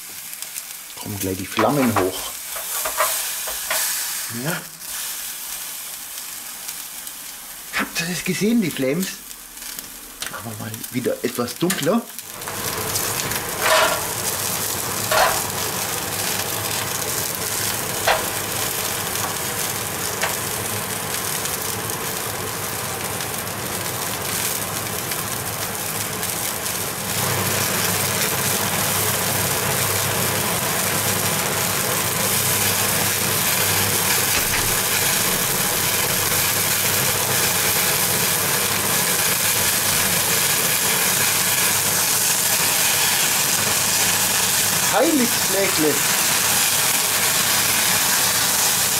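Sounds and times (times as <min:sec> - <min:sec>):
fat flaring on heating coils: 0:00.0 - 0:48.9
meat sizzling on a grill: 0:00.0 - 0:48.9.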